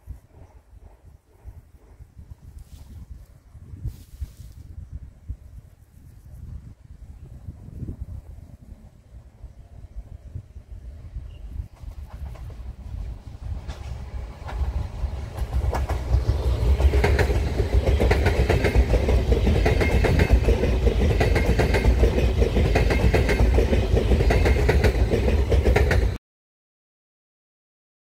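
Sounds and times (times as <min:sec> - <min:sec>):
train passing at speed: 0:00.0 - 0:03.1, 0:07.2 - 0:26.2
wheels clattering over rails: 0:11.8 - 0:26.2.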